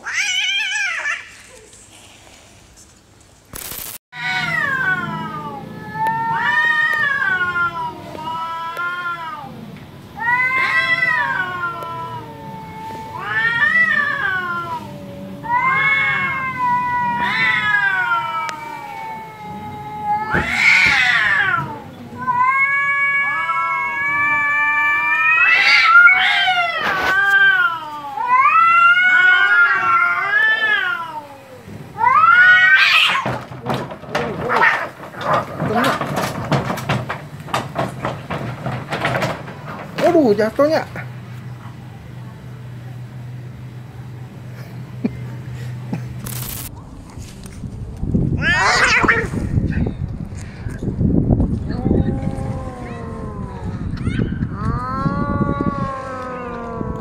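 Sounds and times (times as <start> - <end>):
cats yowling: 0.0 - 1.7, 4.2 - 39.8, 48.3 - 49.4, 51.5 - 57.0.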